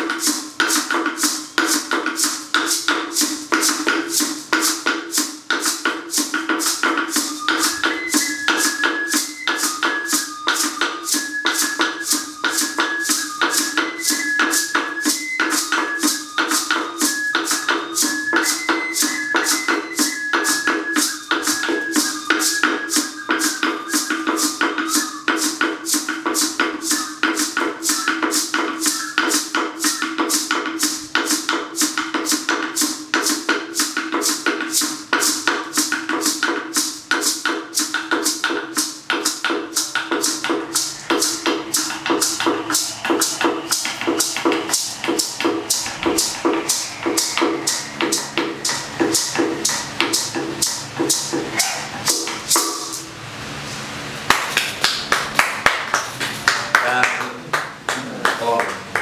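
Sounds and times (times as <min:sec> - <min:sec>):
wooden slit drums struck: 0:00.0 - 0:53.2.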